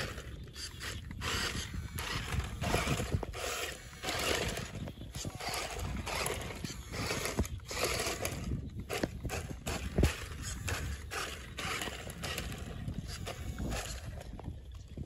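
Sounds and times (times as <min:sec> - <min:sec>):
small electric motor whirring: 0:00.0 - 0:14.5.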